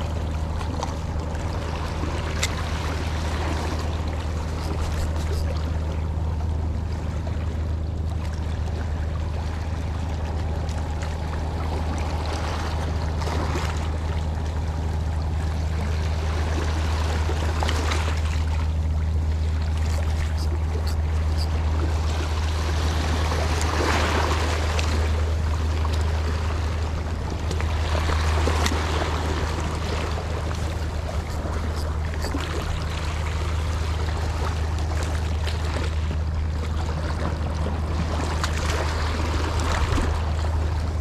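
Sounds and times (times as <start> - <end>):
steady low hum: 0.0 - 41.0
water sloshing and lapping: 0.0 - 41.0
small splashes: 16.0 - 41.0.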